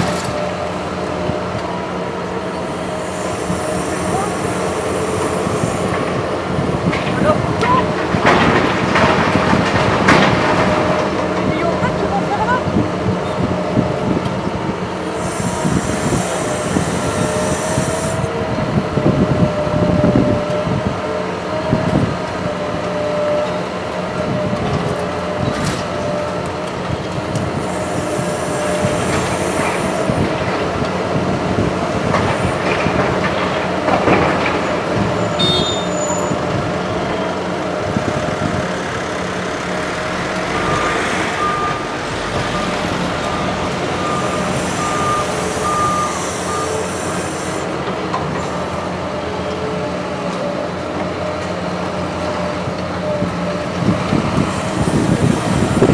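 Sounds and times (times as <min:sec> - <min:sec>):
hydraulic whine: 0:00.0 - 0:06.9, 0:13.2 - 0:20.8, 0:24.4 - 0:33.0, 0:35.0 - 0:49.6
excavator diesel engine: 0:00.0 - 0:55.9.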